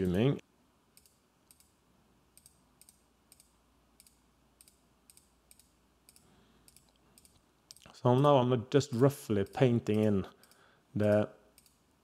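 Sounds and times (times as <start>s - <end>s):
faint computer mouse clicks: 2.4s - 7.9s, 10.4s - 11.8s.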